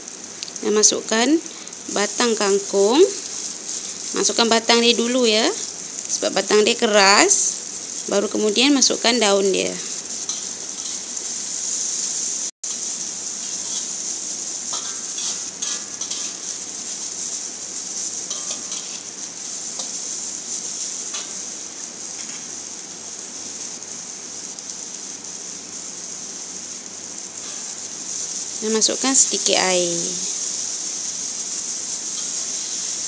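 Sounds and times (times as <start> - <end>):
vegetables sizzling in wok: 0.0 - 33.0
metal spatula scraping pan: 14.8 - 16.5, 18.3 - 19.0.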